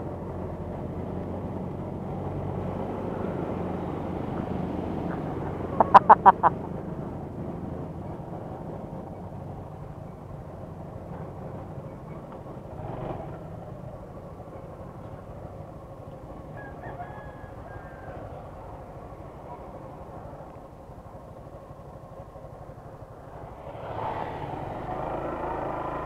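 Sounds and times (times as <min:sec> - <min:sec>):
passing traffic: 0:00.0 - 0:26.0
motorcycle engine idling: 0:05.0 - 0:23.7
rooster crowing: 0:16.5 - 0:18.5.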